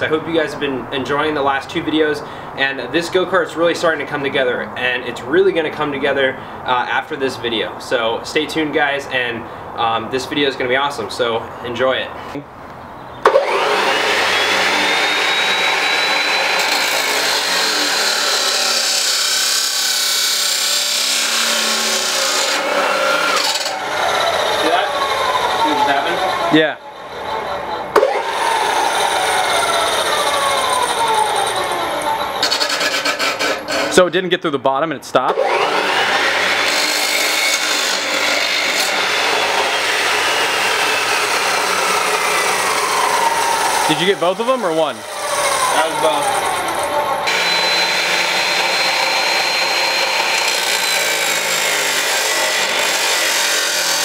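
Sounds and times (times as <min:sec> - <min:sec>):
chop saw grinding through steel: 0:13.2 - 0:26.6, 0:28.0 - 0:34.0, 0:35.3 - 0:54.0.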